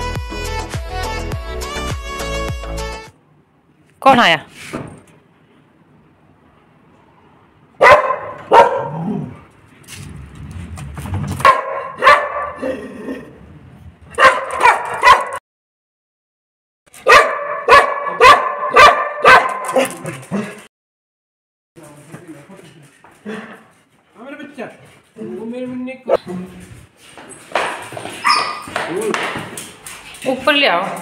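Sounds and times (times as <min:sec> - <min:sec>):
large dog barking: 0:07.8 - 0:09.4, 0:11.4 - 0:12.8, 0:14.1 - 0:15.4, 0:17.0 - 0:20.6.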